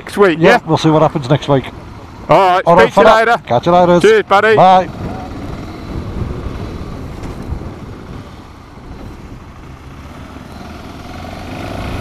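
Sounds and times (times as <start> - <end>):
road and wind noise: 0.0 - 12.0
motorcycle engine: 3.9 - 12.0.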